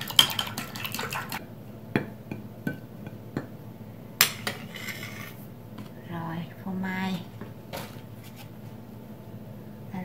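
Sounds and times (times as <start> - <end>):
chopsticks beating eggs in bowl: 0.0 - 1.4.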